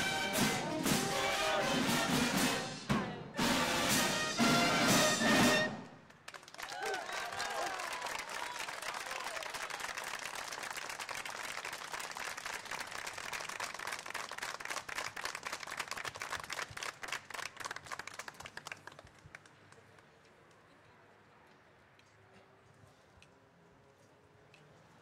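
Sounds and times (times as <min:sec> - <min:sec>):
audience applauding: 0:04.4 - 0:20.0.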